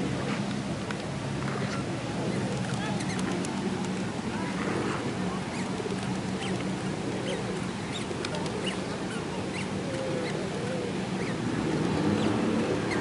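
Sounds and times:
steady background noise: 0:00.0 - 0:13.0
faint wavering calls: 0:06.4 - 0:11.4.

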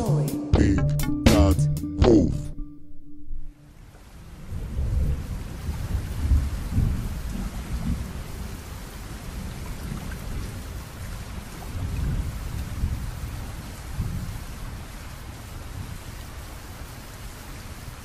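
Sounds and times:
rain hiss: 0:03.6 - 0:18.0
rolling thunder: 0:04.3 - 0:10.7, 0:11.7 - 0:14.8.

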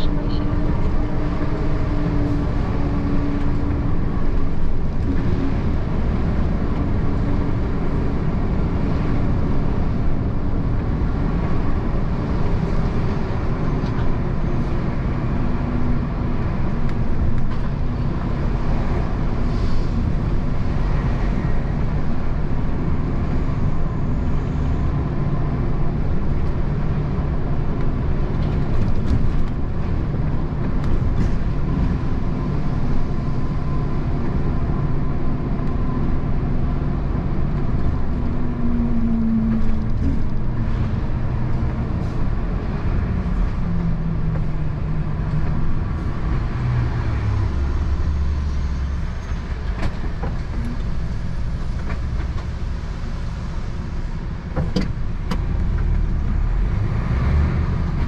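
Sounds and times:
road and tyre rumble: 0:00.0 - 0:58.0.

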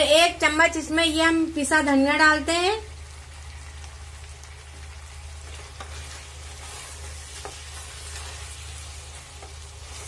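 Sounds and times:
food sizzling in oil: 0:00.0 - 0:10.0
spatula stirring: 0:05.3 - 0:10.0.

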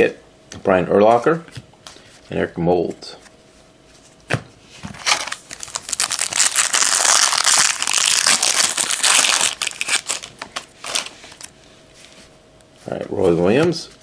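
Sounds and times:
foil wrapper crinkling: 0:05.0 - 0:11.5.

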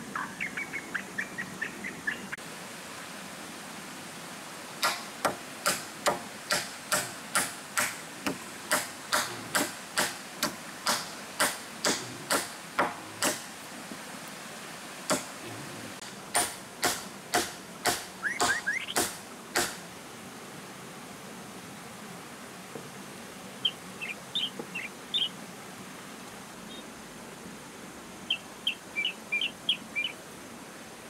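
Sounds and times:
hammer striking wood: 0:04.8 - 0:13.4, 0:16.3 - 0:19.8.

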